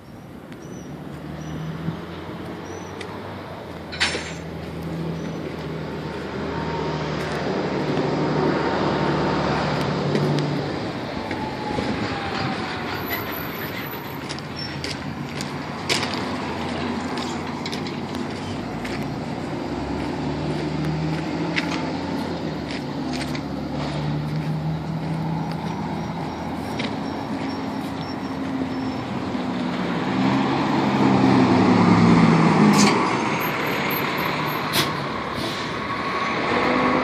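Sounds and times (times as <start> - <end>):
vehicle engine running: 12.4 - 29.9.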